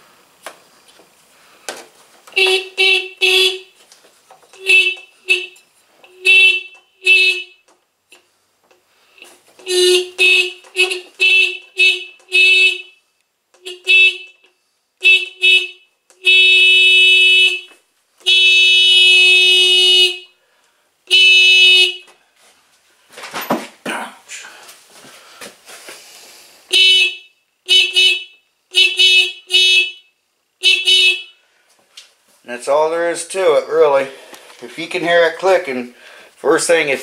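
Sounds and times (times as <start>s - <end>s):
scooter horn beeps and blasts: 2.3s - 3.8s, 4.5s - 7.7s, 9.6s - 13.0s, 13.6s - 20.4s, 21.1s - 22.1s, 26.7s - 31.4s.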